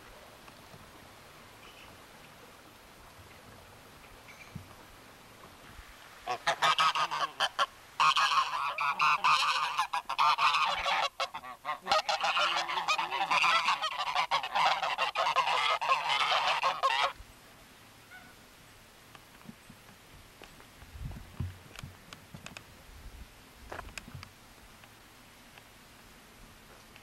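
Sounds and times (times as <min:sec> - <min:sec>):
geese honking: 0:06.2 - 0:17.2, 0:18.1 - 0:18.4.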